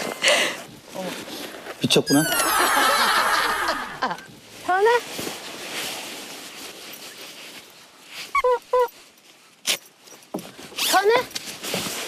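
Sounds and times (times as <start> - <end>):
sleeping bag rustling: 0.0 - 2.2, 3.8 - 12.0
short high-pitched calls: 2.1 - 2.8.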